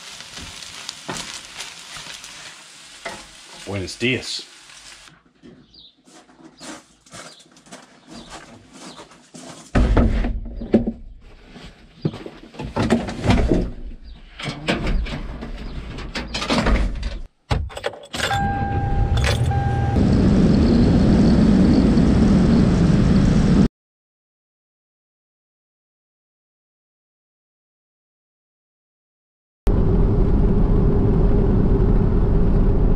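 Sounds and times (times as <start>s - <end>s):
knocks and clunks: 9.7s - 11.3s, 12.0s - 19.6s
electronic tone: 18.2s - 20.0s
vehicle low rumble: 18.3s - 23.7s, 29.7s - 32.9s.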